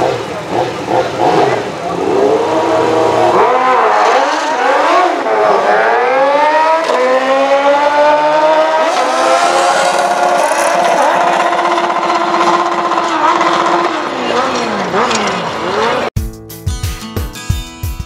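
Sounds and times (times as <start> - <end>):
motorcycles accelerating at full throttle: 0.0 - 16.2.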